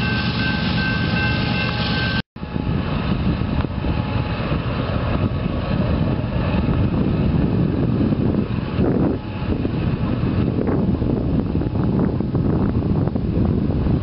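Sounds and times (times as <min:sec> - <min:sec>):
crossing bell: 0:00.0 - 0:02.7
diesel locomotives rumbling: 0:00.0 - 0:14.0
train rolling: 0:00.0 - 0:14.0.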